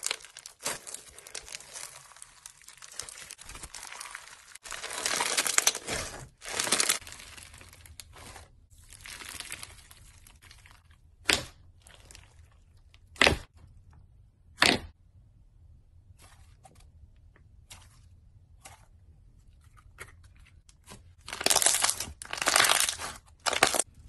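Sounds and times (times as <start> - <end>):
slime crackling and crunching: 0.0 - 12.9, 20.8 - 24.0.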